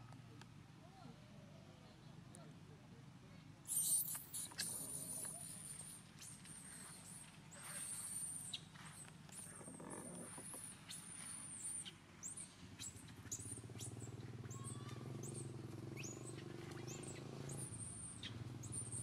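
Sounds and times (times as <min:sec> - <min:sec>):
high-pitched squeaky animal calls: 0:03.7 - 0:08.6, 0:09.4 - 0:19.0.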